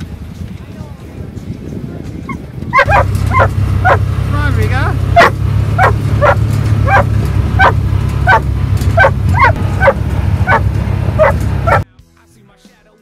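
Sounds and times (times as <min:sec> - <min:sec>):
low engine rumble: 0:00.0 - 0:11.8
dog barking: 0:02.7 - 0:04.1, 0:05.2 - 0:11.8.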